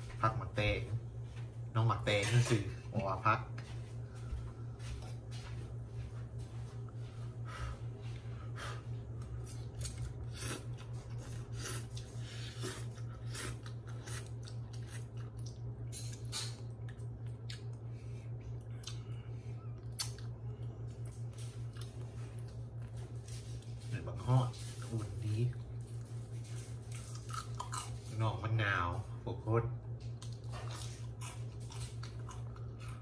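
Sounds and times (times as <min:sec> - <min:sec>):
steady low hum: 0:00.0 - 0:33.0
person slurping and chewing noodles: 0:09.4 - 0:15.5.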